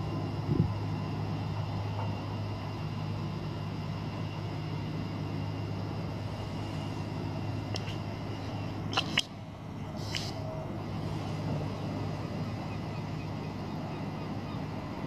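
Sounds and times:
faint high whining tones: 0.0 - 15.0
low mechanical hum: 0.0 - 15.0.

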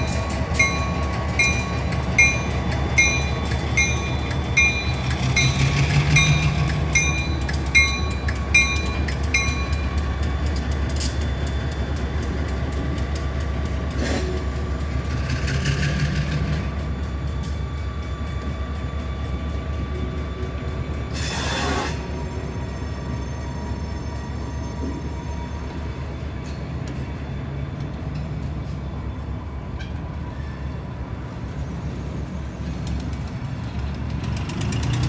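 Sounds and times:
crossing bell dinging: 0.0 - 10.2
diesel locomotive engines droning: 0.0 - 35.0.

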